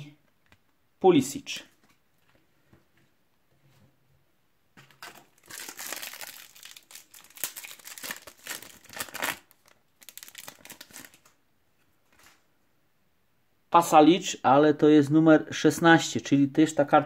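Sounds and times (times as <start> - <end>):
foil wrapper tearing: 5.0 - 11.3
foil wrapper crinkling: 5.0 - 11.4.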